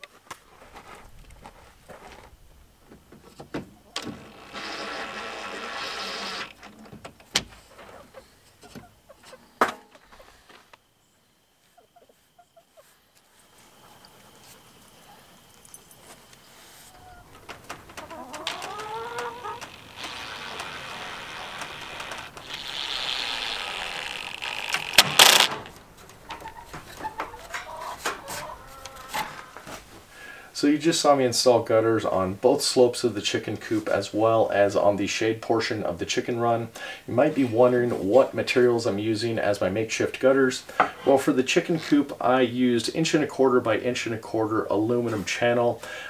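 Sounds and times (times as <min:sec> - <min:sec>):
cordless drill driving screw: 0:04.2 - 0:06.6, 0:19.7 - 0:25.6
small clicks: 0:18.3 - 0:26.2.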